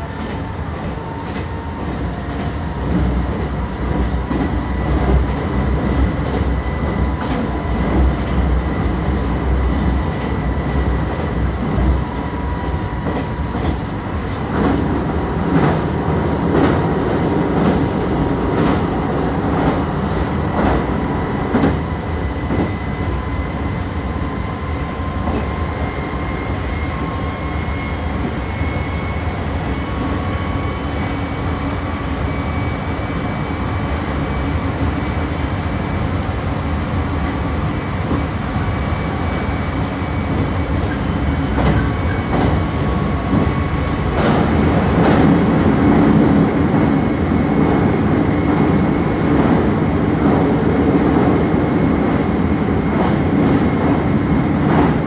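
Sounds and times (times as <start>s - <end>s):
train wheel and track rumble: 0.0s - 55.0s.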